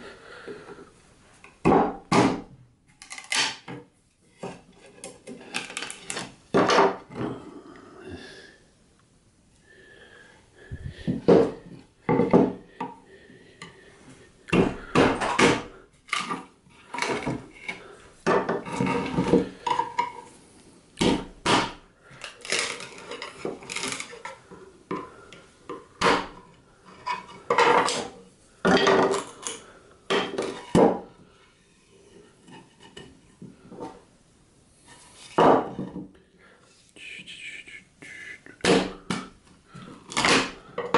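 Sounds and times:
boards set down on bench: 1.5 - 2.6, 3.3 - 7.4, 11.0 - 13.0, 14.5 - 20.3, 26.0 - 26.4, 27.5 - 31.1, 35.2 - 36.1
boards knocking and clattering: 1.5 - 7.4, 10.9 - 13.0, 14.5 - 20.3, 21.0 - 21.8, 26.0 - 31.1, 35.2 - 36.1, 38.6 - 40.9.

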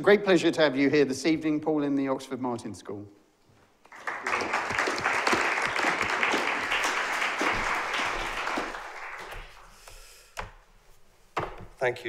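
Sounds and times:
audience applauding: 3.8 - 9.9.

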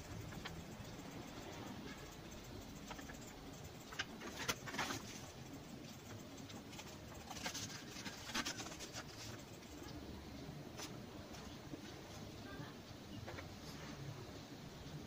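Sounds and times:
paper and cardboard rustling: 6.7 - 9.5.

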